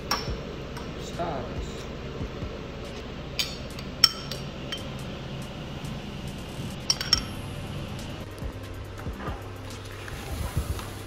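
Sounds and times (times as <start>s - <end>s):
metal spoon clinking glass bowl: 6.8s - 7.4s.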